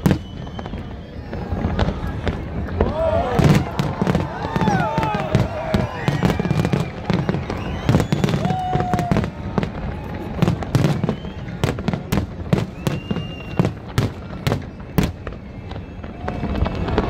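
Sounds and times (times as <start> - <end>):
fireworks bangs: 0.0 - 17.0.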